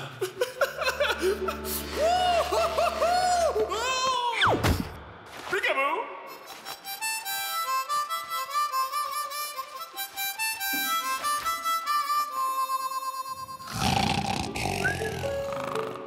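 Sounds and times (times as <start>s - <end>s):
harmonica slow melody: 0.9s - 3.9s, 6.3s - 16.0s.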